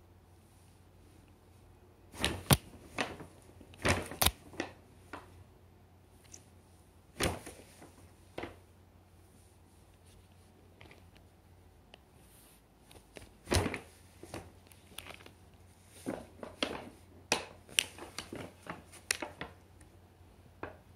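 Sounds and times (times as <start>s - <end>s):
paper bag crackling: 17.6s - 19.6s.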